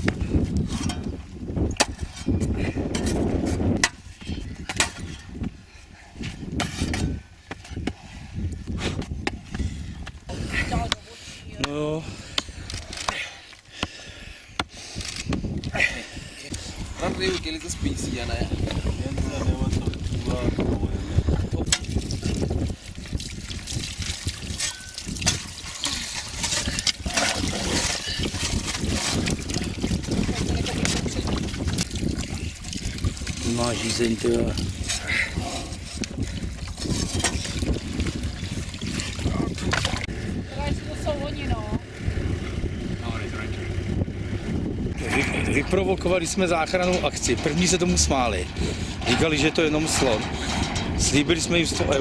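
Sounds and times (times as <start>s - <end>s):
steady low rumble: 15.4s - 52.0s
water trickling from a bottle: 18.5s - 40.1s
low rumble: 34.5s - 52.0s.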